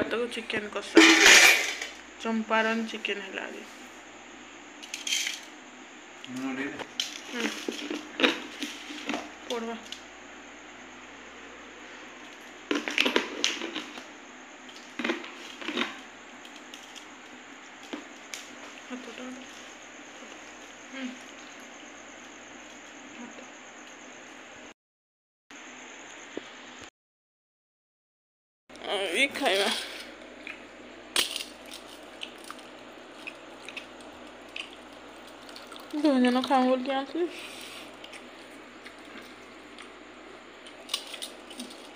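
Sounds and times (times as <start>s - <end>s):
steel bowls and plates clattering: 1.0s - 2.0s.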